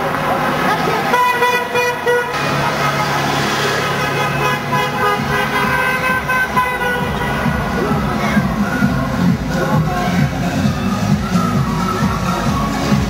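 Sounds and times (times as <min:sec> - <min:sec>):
traffic engine and road noise: 0:00.0 - 0:13.0
car horns tooting: 0:00.7 - 0:11.0.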